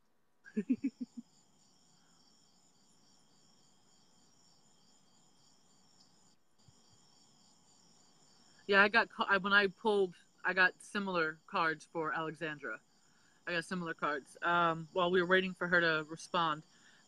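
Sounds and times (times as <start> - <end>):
insects chirping: 0.6 - 17.0.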